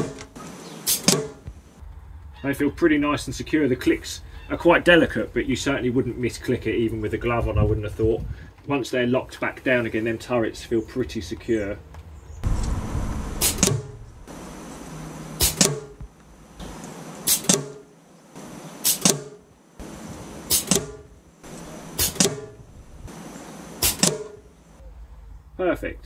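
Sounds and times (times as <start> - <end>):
air rifle shots: 0.0 - 1.5, 12.4 - 14.6, 15.4 - 16.0, 17.2 - 24.5.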